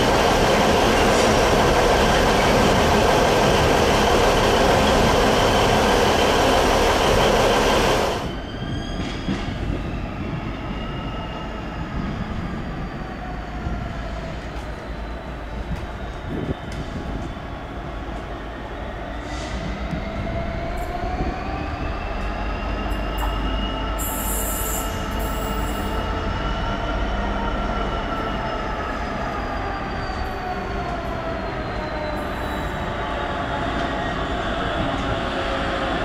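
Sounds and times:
diesel locomotive rumbling: 0:00.0 - 0:10.4.

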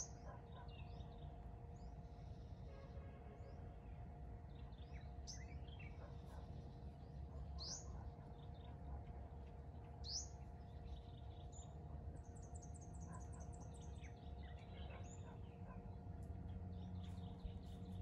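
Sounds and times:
small birds chirping: 0:00.0 - 0:02.6, 0:03.4 - 0:18.0
steady low rumble: 0:15.4 - 0:18.0.

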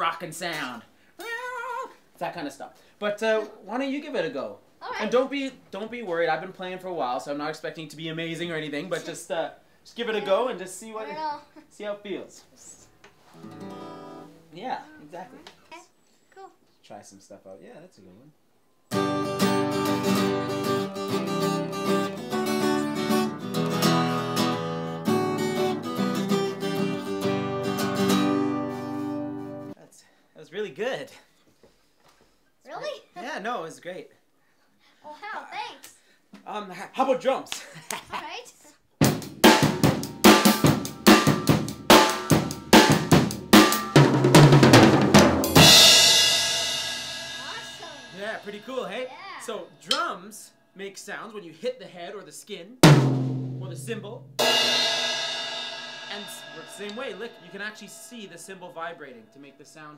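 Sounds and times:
acoustic guitar strumming: 0:13.4 - 0:14.4, 0:18.9 - 0:29.8, 0:39.2 - 0:50.3, 0:52.8 - 0:59.9
drum kit beat: 0:18.9 - 0:29.7, 0:39.0 - 0:50.2, 0:52.8 - 0:59.8
drum fill: 0:39.0 - 0:48.8, 0:52.8 - 0:58.8
crash cymbal ringing: 0:45.6 - 0:48.7, 0:54.4 - 0:59.9.

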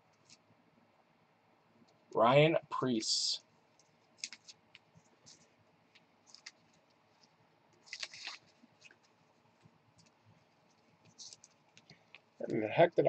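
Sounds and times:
card rustling: 0:03.7 - 0:12.6.

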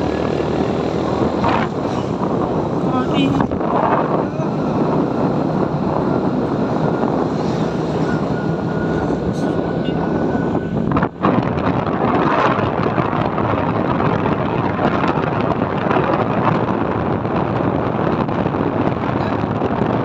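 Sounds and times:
motorbike engine and tyre noise: 0:00.0 - 0:20.0
wind rushing over microphone: 0:00.0 - 0:20.0
thin steady whine: 0:01.2 - 0:12.3.

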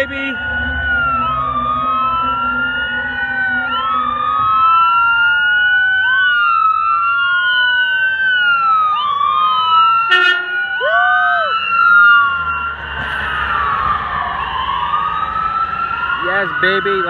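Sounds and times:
ambulance sirens wailing: 0:00.0 - 0:17.0
horn blast: 0:10.1 - 0:10.6.

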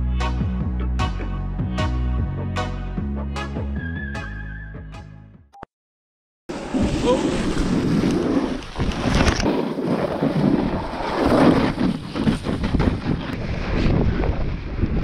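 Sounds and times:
snowboard scraping over snow: 0:06.5 - 0:15.0
wind buffeting microphone: 0:06.5 - 0:15.0.

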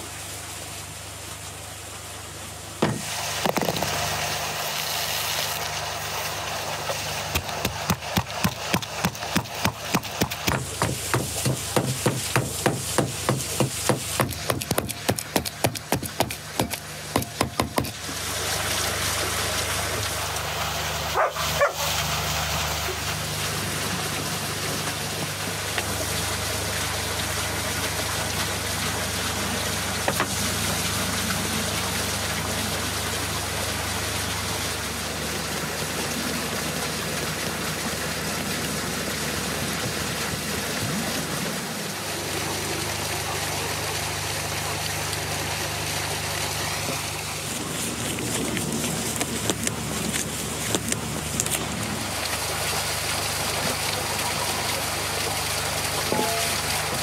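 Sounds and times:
outdoor noise: 0:00.0 - 0:57.0
pestle pounding in wooden mortar: 0:02.8 - 0:03.7, 0:07.3 - 0:18.0
dog bark: 0:21.2 - 0:22.0.

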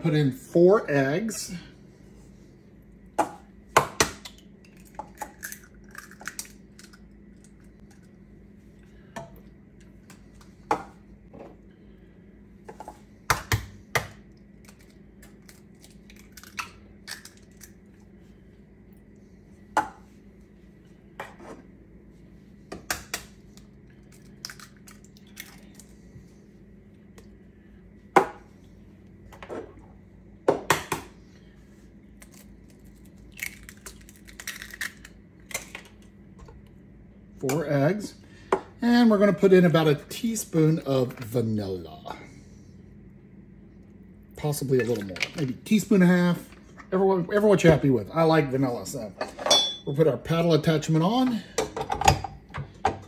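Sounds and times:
eggs cracking into metal bowl: 0:03.8 - 0:08.1, 0:33.3 - 0:36.0.

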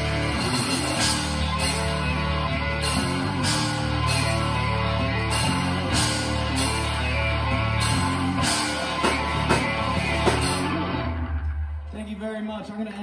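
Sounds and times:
live rock band playing: 0:00.0 - 0:11.9
drum hits: 0:07.8 - 0:11.1.

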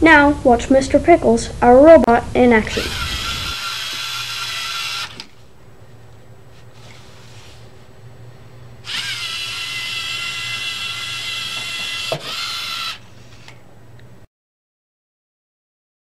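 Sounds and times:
robot motors whining: 0:02.6 - 0:05.4, 0:08.8 - 0:13.0.

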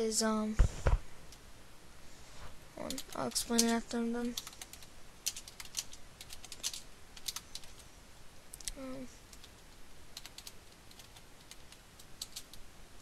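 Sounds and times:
keyboard typing: 0:02.8 - 0:07.8, 0:10.2 - 0:12.6.

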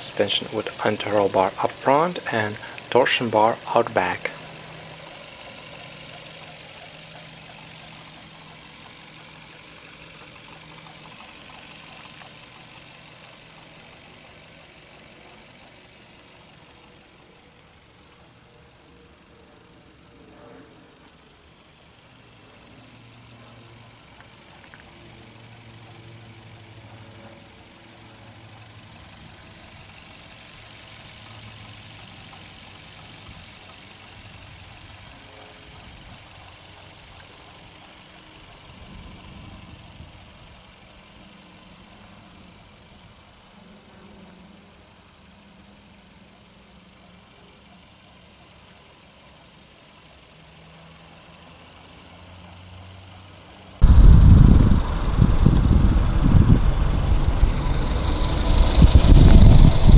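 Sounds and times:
car engine idling: 0:00.0 - 0:18.9, 0:28.0 - 0:43.4, 0:52.8 - 0:59.9.

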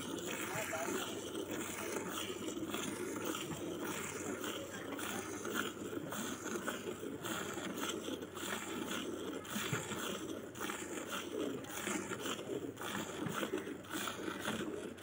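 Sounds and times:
milk squirting into bucket: 0:00.0 - 0:15.0.

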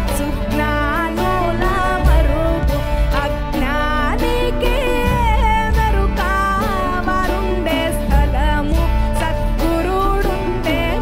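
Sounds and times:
folk music ensemble: 0:00.0 - 0:11.0
woman singing: 0:00.0 - 0:11.0
drums beating: 0:01.5 - 0:07.4.

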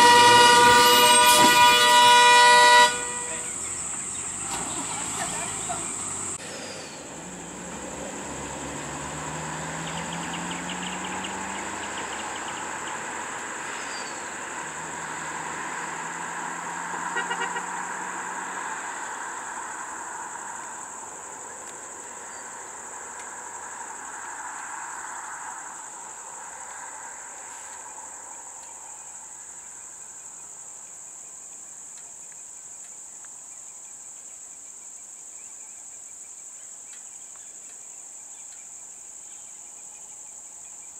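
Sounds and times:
brief loud sound: 0:00.0 - 0:03.5
vehicle engine on road: 0:00.0 - 0:34.2
insects chorus: 0:00.0 - 0:40.9.

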